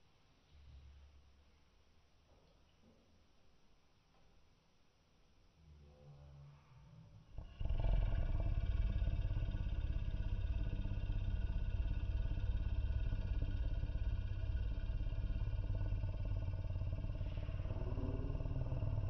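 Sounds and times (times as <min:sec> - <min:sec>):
throat-singing growl: 0:07.4 - 0:19.0.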